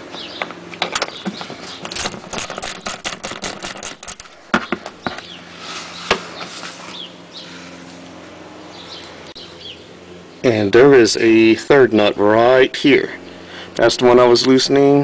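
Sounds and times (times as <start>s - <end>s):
birds chirping faintly: 0.0s - 3.0s, 4.4s - 15.0s.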